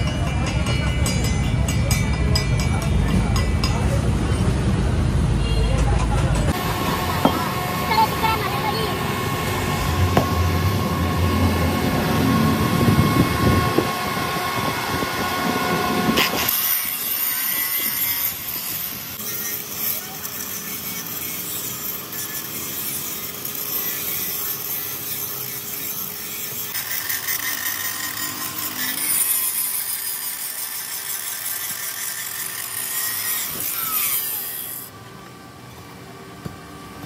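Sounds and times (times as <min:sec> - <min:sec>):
angle grinder grinding metal: 0:06.4 - 0:34.9.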